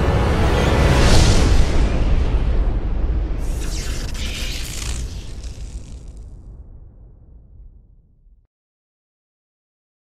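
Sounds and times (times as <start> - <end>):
crackling hiss: 3.4 - 6.4.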